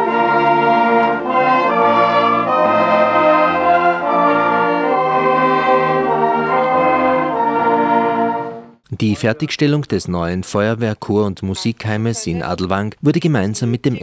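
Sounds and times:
brass band playing: 0.0s - 8.8s.

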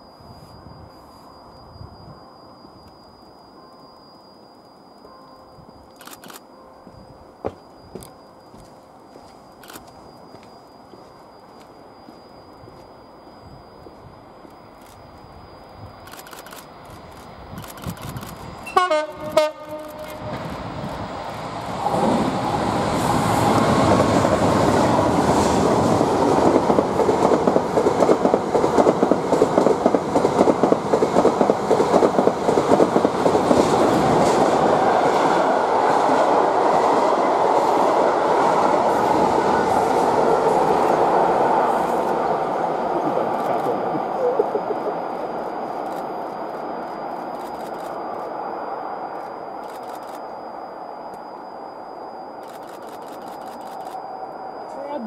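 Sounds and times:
diesel locomotive passing: 18.4s - 49.6s
locomotive horn blasts: 18.7s - 20.6s.

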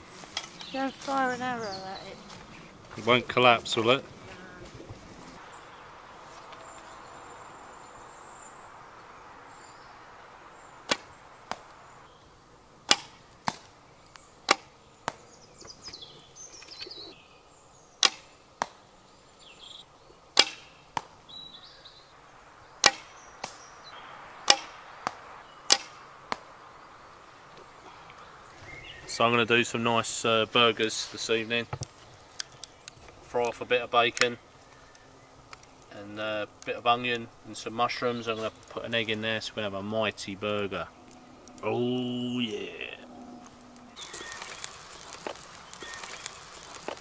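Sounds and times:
bow string snapping: 12.9s - 15.2s, 18.0s - 18.8s, 20.4s - 21.1s, 22.8s - 23.7s, 24.4s - 26.5s
arrows thudding into target: 20.4s - 21.1s, 22.8s - 23.6s, 24.5s - 26.4s.

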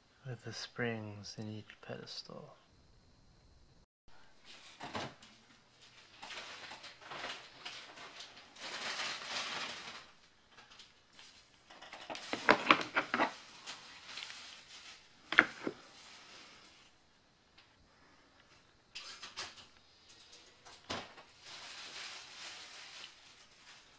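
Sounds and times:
plastic rustling and scraping: 4.4s - 16.9s, 20.4s - 23.9s.

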